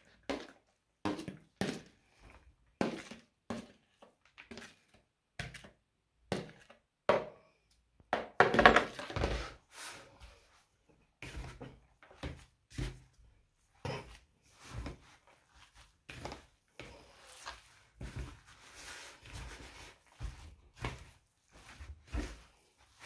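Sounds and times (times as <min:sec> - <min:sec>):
spoon scraping plastic container: 0:08.8 - 0:10.1.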